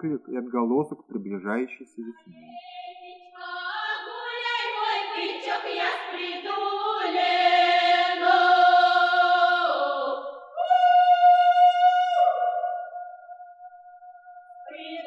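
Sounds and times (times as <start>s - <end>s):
folk singers singing held notes: 2.3s - 13.6s.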